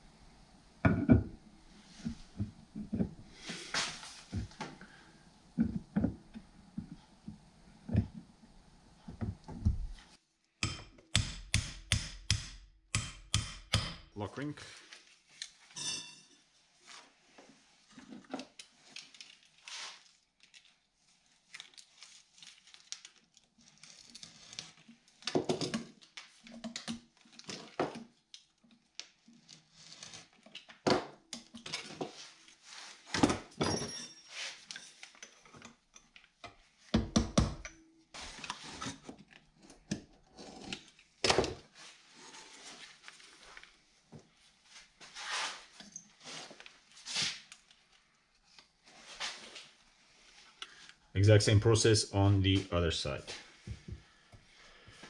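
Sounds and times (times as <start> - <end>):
knocks and taps on metal parts: 10.6 - 14.1.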